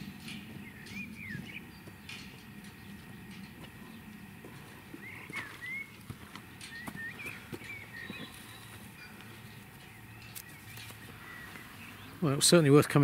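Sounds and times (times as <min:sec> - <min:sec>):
bird chirping: 0:00.0 - 0:12.4
footsteps in mud: 0:04.4 - 0:11.8.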